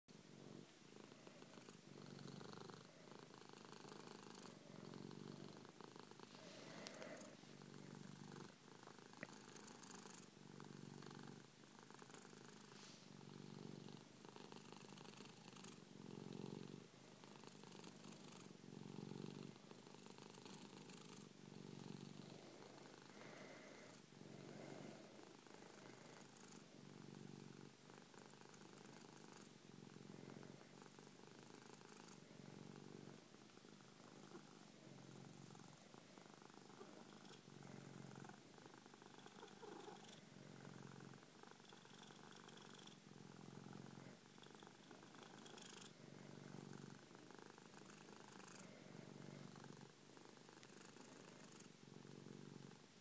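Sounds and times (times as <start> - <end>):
cat purring: 0.1 - 53.0.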